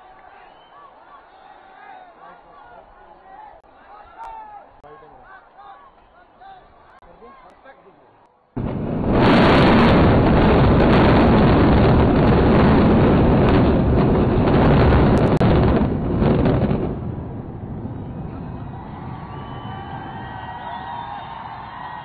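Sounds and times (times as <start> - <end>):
building collapse rumbling roar: 8.6 - 22.0.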